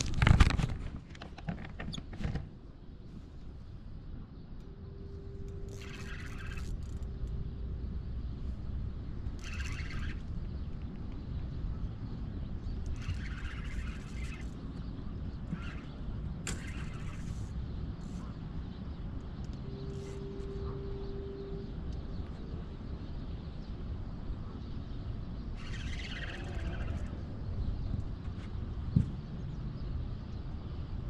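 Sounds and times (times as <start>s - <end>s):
low outdoor rumble: 0.0s - 31.0s
steady single tone: 4.5s - 8.4s, 19.4s - 22.9s
bird calls: 5.0s - 7.4s, 8.2s - 30.8s.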